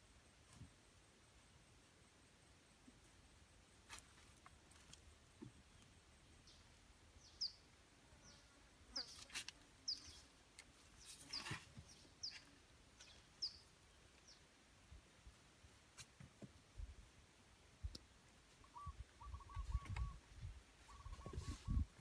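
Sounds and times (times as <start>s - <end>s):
small bird chirping: 6.4s - 14.5s, 17.9s - 21.9s.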